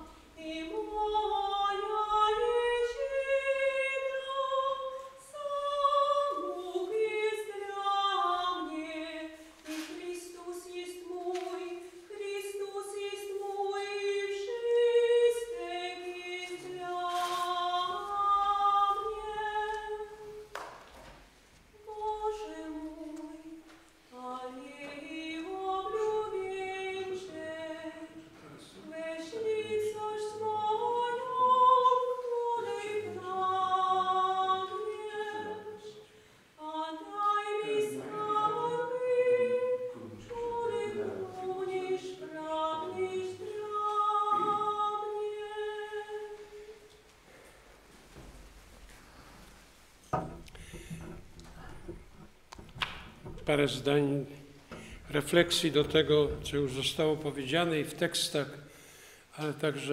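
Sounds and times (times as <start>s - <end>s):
voices singing unaccompanied: 0.0s - 20.5s, 21.8s - 36.0s, 36.6s - 46.8s.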